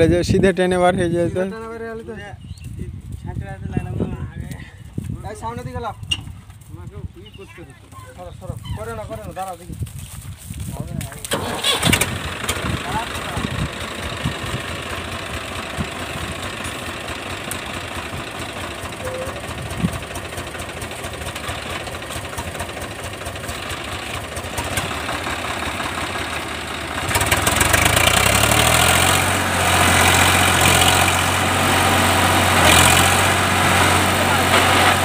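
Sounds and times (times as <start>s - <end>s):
tractor diesel engine revving: 11.1s - 35.0s.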